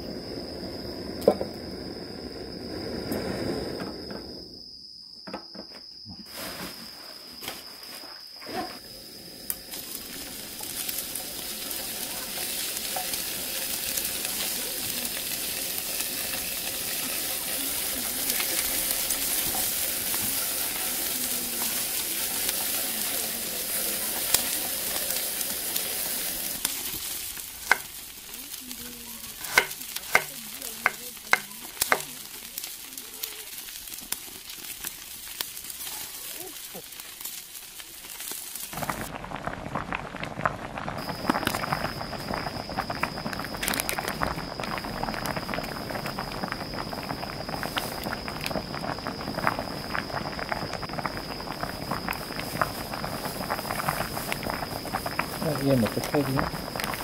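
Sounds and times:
food sizzling in a pot: 6.2 - 57.0.

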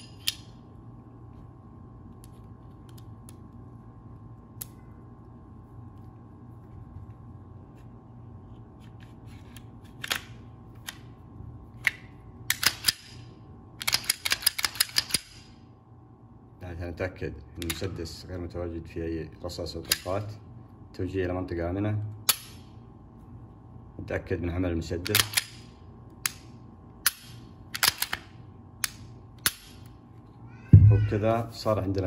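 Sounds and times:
pistol parts clicking: 0.0 - 0.5, 10.0 - 11.0, 11.8 - 13.2, 13.8 - 15.5, 22.2 - 22.6, 25.0 - 29.9
steady low hum: 0.0 - 32.0.

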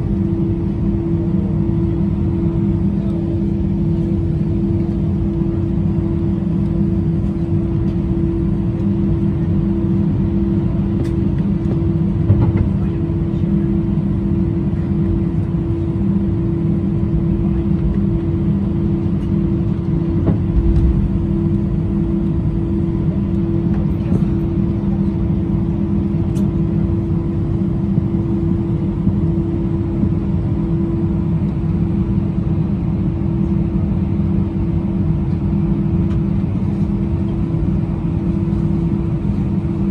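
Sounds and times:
aircraft cabin hum: 0.0 - 39.9
low thump: 20.3 - 21.3.

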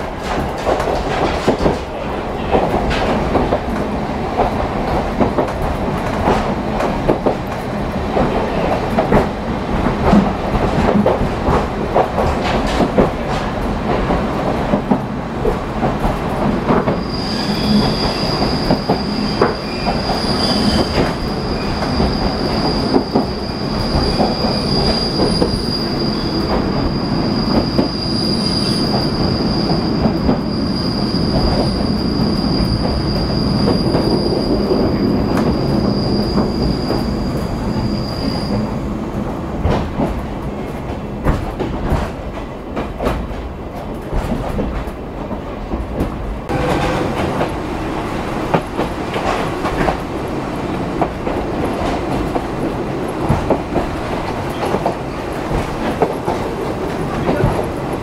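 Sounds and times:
rail joint clicks: 0.0 - 58.0
wheel flange squeal: 17.0 - 29.7.

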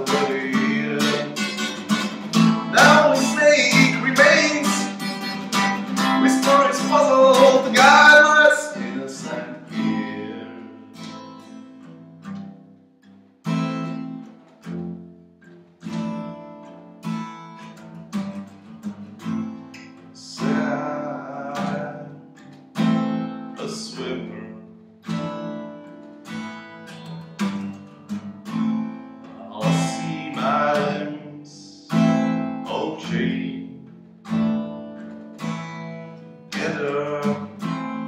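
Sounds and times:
man singing: 0.0 - 11.0, 20.0 - 22.3, 23.5 - 24.7, 29.2 - 33.9, 36.5 - 38.0
acoustic guitar strumming: 0.0 - 38.0.

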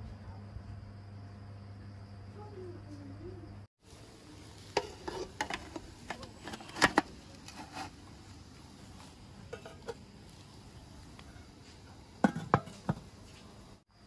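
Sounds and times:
metal steamer pot clanking: 4.7 - 7.9, 9.5 - 10.1, 12.2 - 13.2.

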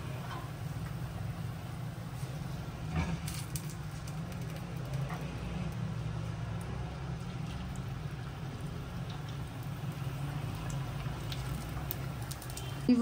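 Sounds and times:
deep-frying sizzle and crackles: 0.0 - 13.0.

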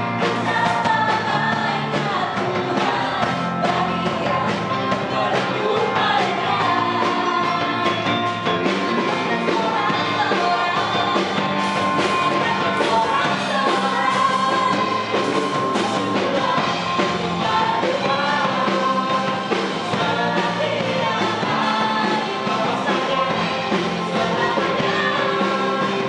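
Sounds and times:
live band playing: 0.0 - 26.0
man singing lead: 0.0 - 26.0
women singing backing vocals: 0.2 - 8.2, 8.9 - 26.0.

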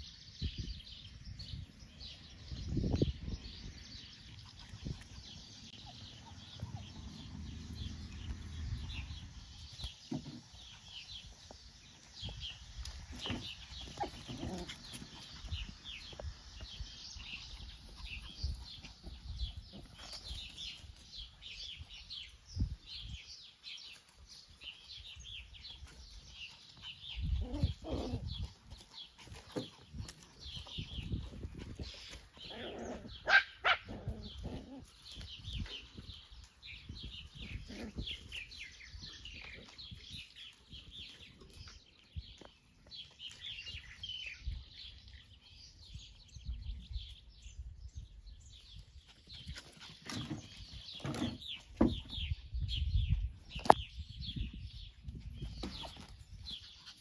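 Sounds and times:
songbirds chirping: 0.0 - 57.0
puppies yipping and barking: 4.2 - 7.7, 25.8 - 35.3.

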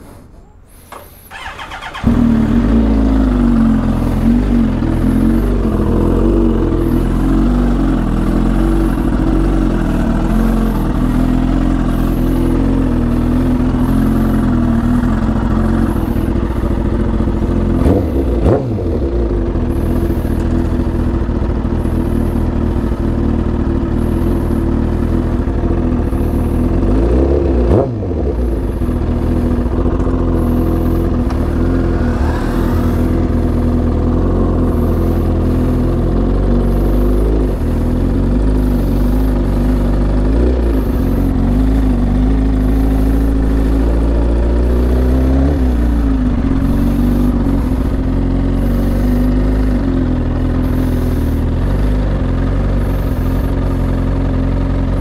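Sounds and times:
motorcycle engine running: 1.0 - 55.0.

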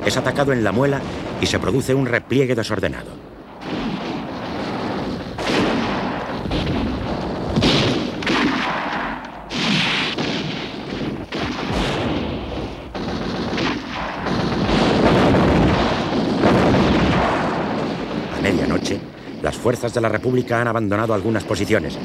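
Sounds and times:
continuous low rumble: 0.0 - 9.5
gunfire shots: 0.0 - 22.0.

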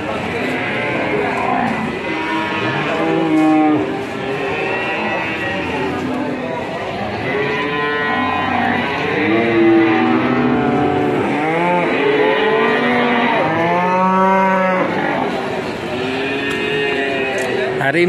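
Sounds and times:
cattle mooing: 0.1 - 17.8.

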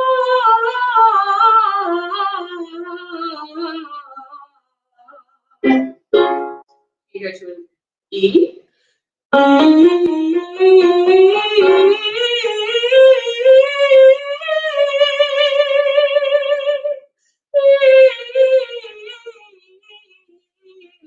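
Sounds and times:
woman singing vocal exercise: 0.0 - 5.2, 10.4 - 16.8
woman breathing: 8.7 - 9.1.

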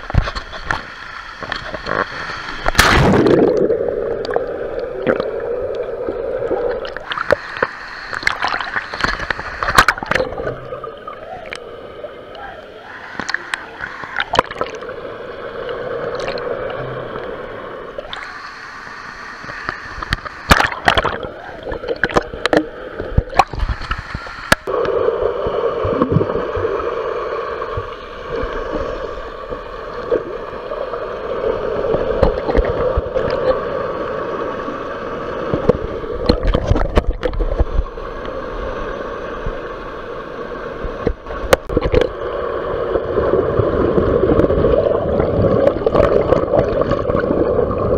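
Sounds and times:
muffled underwater hum: 0.0 - 47.9
sharp knocks and splashes: 2.6 - 3.5, 20.5 - 21.2.

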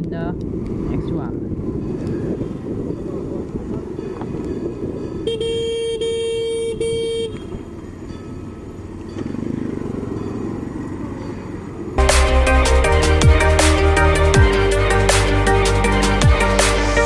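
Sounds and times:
wind and traffic rumble: 0.0 - 12.0
vehicle horn honking: 5.2 - 7.8.

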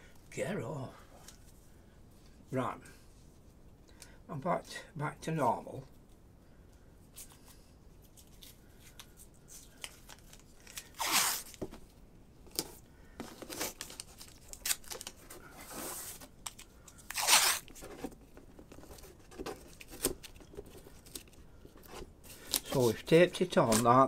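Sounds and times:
tape ripped off roll: 11.0 - 11.5.

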